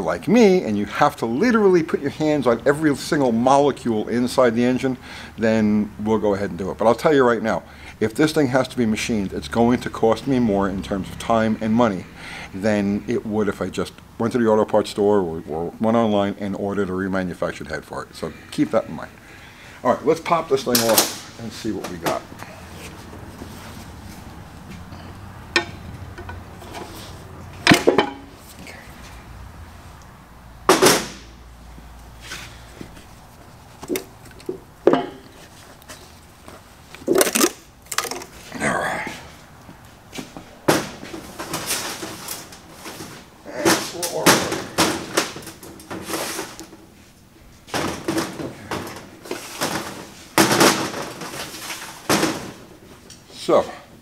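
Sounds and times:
heavy metal clunks and scrapes: 25.0s - 28.5s
metal knocks and clanks: 25.5s - 27.0s, 27.6s - 28.3s, 33.9s - 35.3s.

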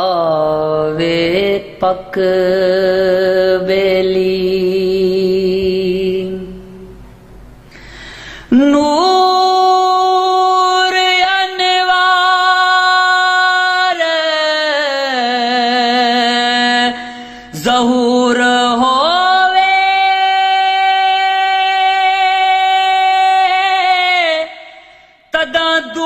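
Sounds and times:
man singing unaccompanied: 0.0s - 6.9s, 8.5s - 26.0s
singer breathing: 7.6s - 8.6s, 17.0s - 17.6s, 24.6s - 25.4s.

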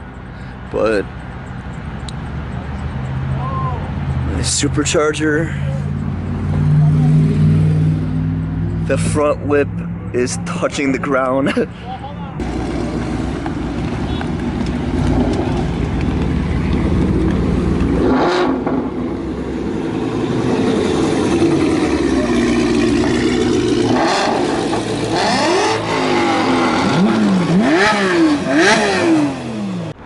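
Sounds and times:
cars driving slowly past: 0.0s - 30.0s
car engine revving: 5.8s - 11.2s, 12.4s - 30.0s.

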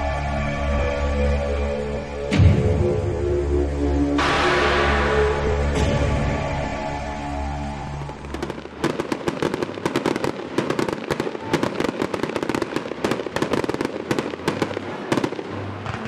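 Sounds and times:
music: 0.0s - 16.0s
fireworks cracking and popping: 8.0s - 16.0s.

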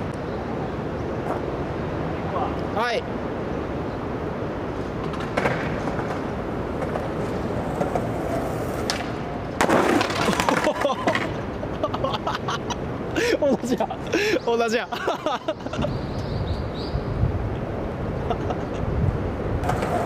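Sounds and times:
outdoor background noise: 0.0s - 20.0s
skateboard rolling on asphalt: 3.9s - 11.8s, 19.0s - 20.0s.

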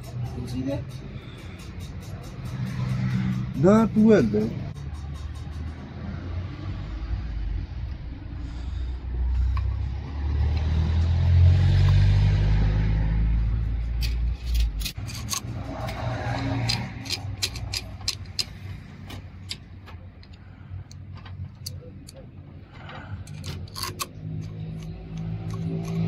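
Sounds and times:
vehicle engine rumbling by: 0.0s - 26.0s
sharp clicks and taps: 14.0s - 22.2s, 23.3s - 26.0s.

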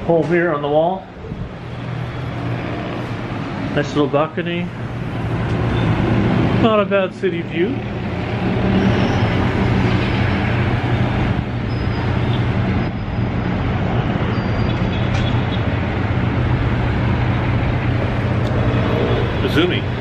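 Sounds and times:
city traffic noise: 0.0s - 20.0s.

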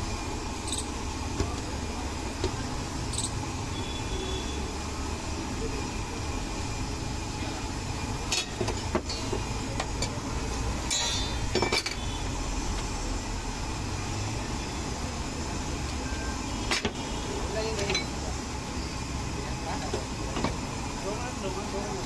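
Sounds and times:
metal spatula clinking on iron pan: 10.9s - 11.9s.

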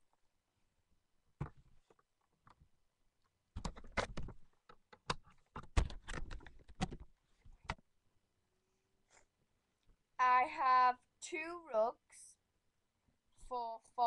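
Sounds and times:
plastic toys clicking and knocking: 3.6s - 7.8s.

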